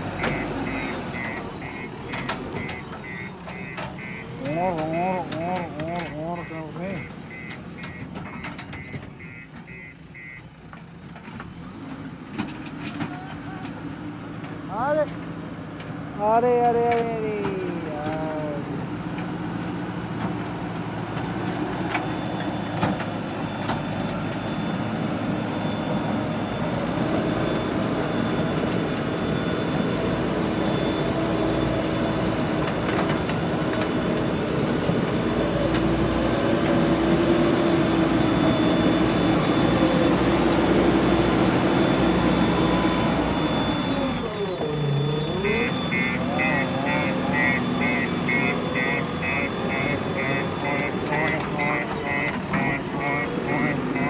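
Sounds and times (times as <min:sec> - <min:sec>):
diesel engine working under load: 0:00.0 - 0:54.0.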